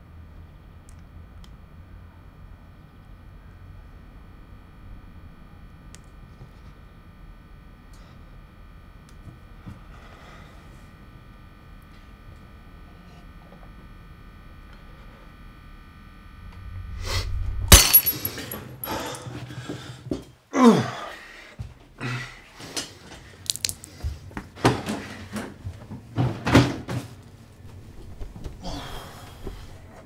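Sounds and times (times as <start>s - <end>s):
low rumble: 16.0s - 19.3s, 27.6s - 30.0s
loud crash: 16.4s - 19.2s.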